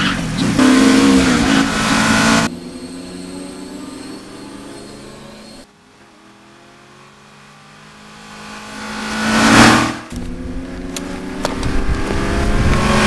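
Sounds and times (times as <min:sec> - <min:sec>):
car engine running steadily: 0:00.0 - 0:13.0
sports car passing: 0:00.1 - 0:13.0.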